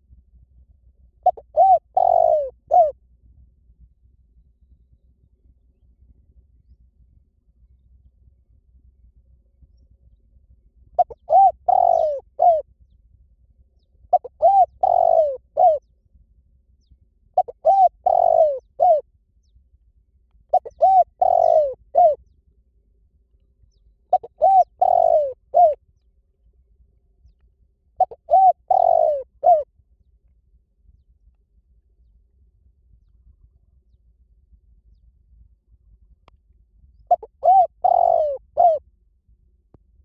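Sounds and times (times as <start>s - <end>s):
dove cooing: 1.2s - 3.0s, 11.0s - 12.6s, 14.1s - 15.9s, 17.4s - 19.0s, 20.5s - 22.2s, 24.1s - 25.8s, 28.0s - 29.7s, 37.0s - 38.8s.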